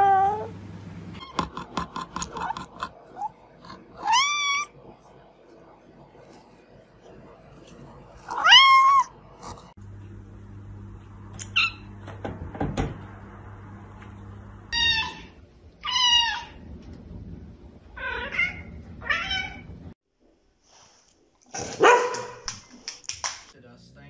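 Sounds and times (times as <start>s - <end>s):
dog barking: 21.7s - 22.5s.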